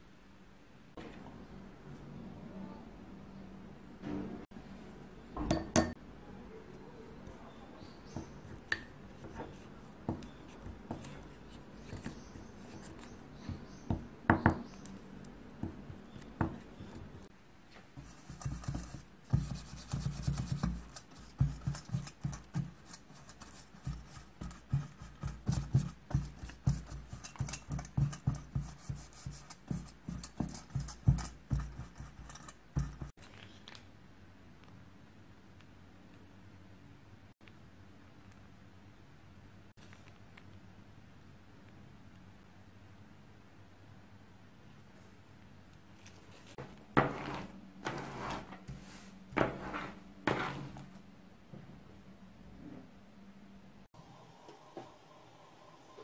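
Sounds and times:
pastry brush dabbing: 7.3s - 33.2s.

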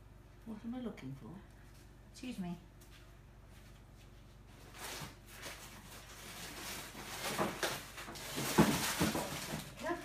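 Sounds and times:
rustling and handling noises: 2.7s - 10.0s.

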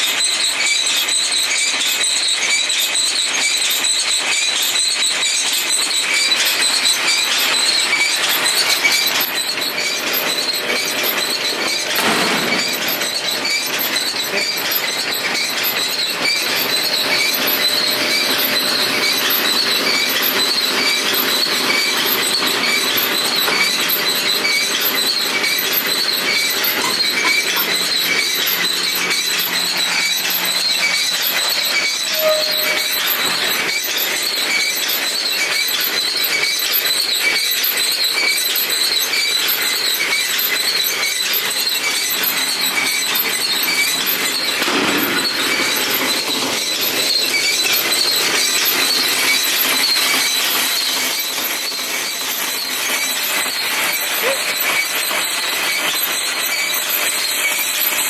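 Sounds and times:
baler mechanical clatter: 0.1s - 58.0s.

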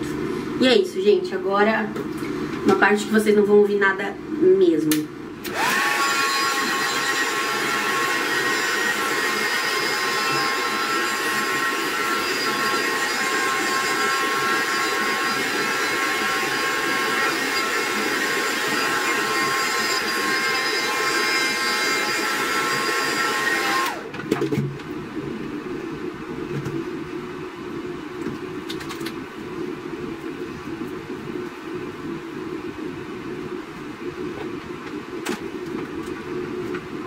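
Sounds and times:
hair dryer running: 5.4s - 24.2s.

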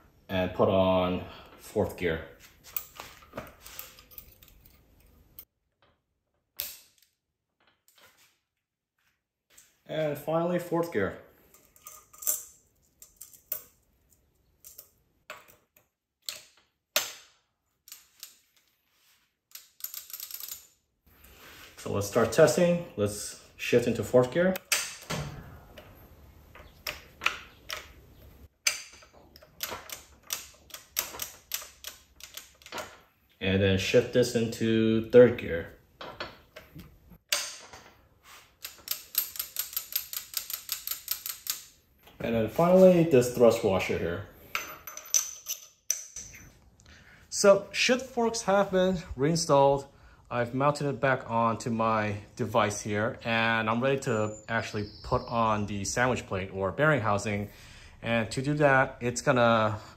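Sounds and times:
metallic clicks of gear parts: 28.6s - 32.9s, 38.6s - 41.7s.

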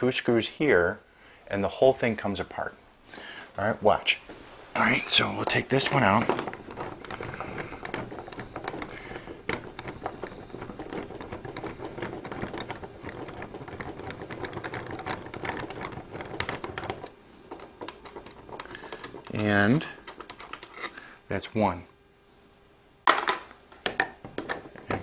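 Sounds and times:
screwdriver clicking and scraping: 5.4s - 21.0s.

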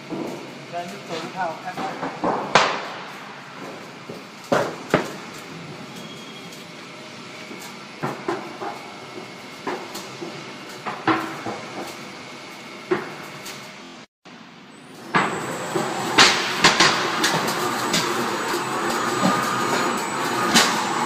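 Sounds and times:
roll forming machine running: 14.9s - 21.0s.

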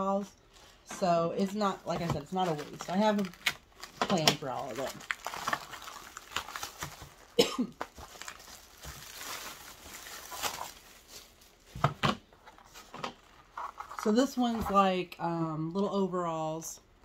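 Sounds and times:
plastic packaging crinkling: 1.8s - 14.0s.

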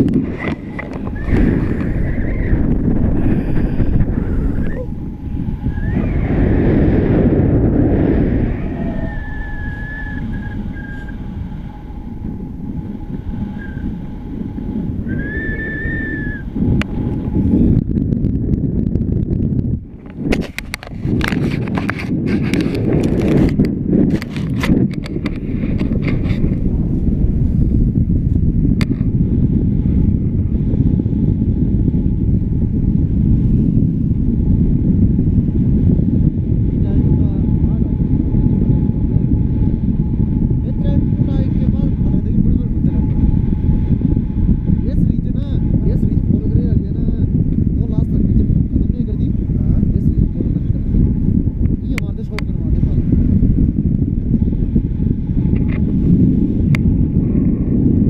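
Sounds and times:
wind buffeting microphone: 0.0s - 58.0s
thin whistling tone: 5.6s - 6.3s, 8.8s - 11.3s, 15.0s - 16.5s.

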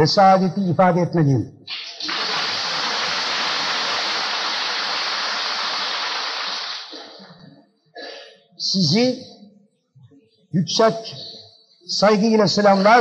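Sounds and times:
crowd applause in a large hall: 1.7s - 7.2s.

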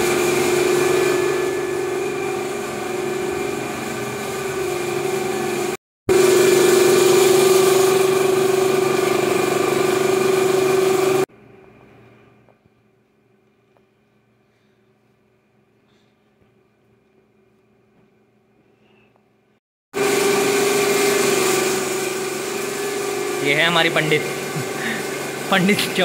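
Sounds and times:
motor humming: 0.0s - 11.3s, 20.0s - 26.0s.

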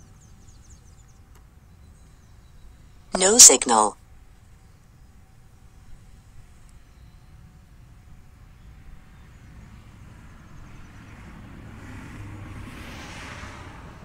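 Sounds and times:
vehicle passing by: 10.9s - 14.0s.

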